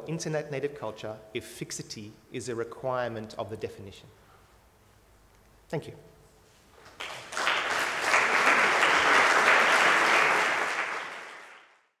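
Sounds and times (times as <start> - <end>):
audience applauding: 6.9 - 11.9.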